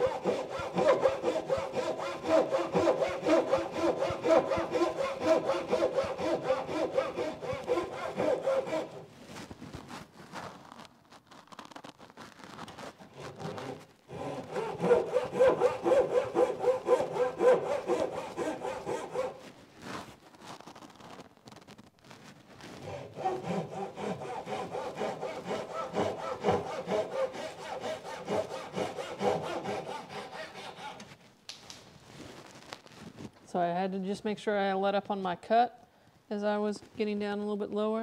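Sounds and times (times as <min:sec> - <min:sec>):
hand saw cutting wood: 0:00.0 - 0:09.1, 0:13.0 - 0:19.5, 0:22.8 - 0:31.2.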